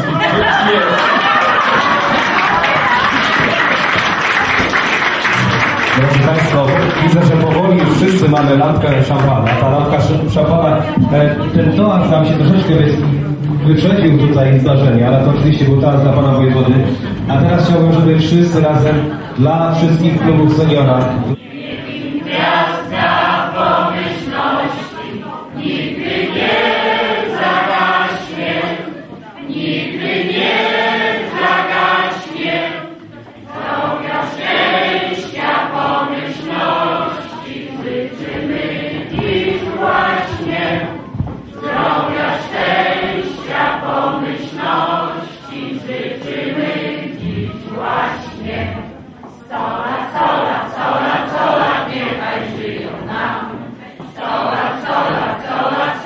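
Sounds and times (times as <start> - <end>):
people singing in chorus: 16.6 - 56.0.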